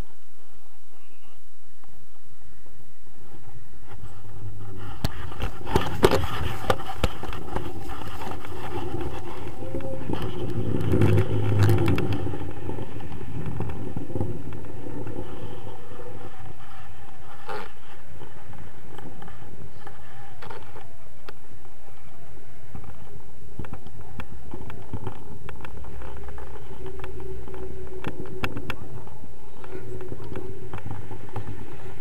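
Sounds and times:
wind buffeting microphone: 2.1 - 32.0.

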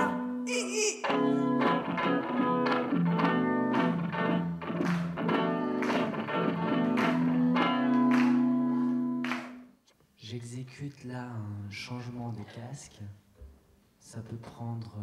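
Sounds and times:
electric guitar strumming chords: 0.0 - 9.6.

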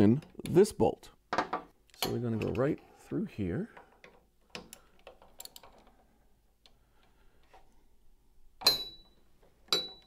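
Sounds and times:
sharp ringing metal clink: 8.6 - 10.0.

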